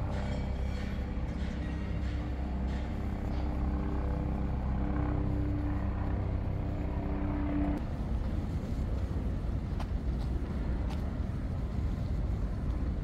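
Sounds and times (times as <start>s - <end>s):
humming tone: 0.0s - 7.8s
engine drone: 0.0s - 13.0s.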